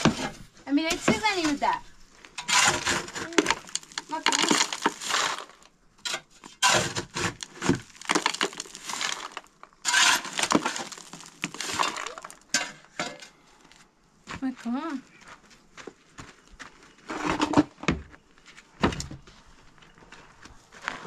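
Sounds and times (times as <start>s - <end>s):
shovel scraping gravel: 0.0s - 13.2s.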